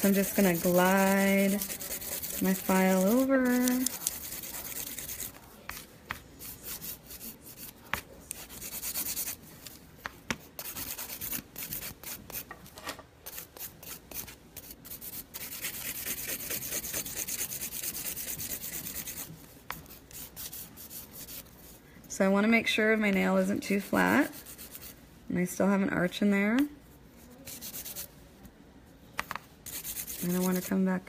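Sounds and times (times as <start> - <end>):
nail file rasping: 0.0 - 5.3, 10.6 - 12.5, 13.3 - 19.3, 29.7 - 30.7.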